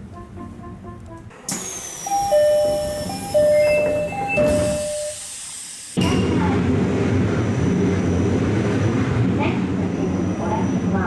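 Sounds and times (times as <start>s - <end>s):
electric train running on rails: 0.0s - 11.0s
two-tone electronic door chime: 1.9s - 5.2s.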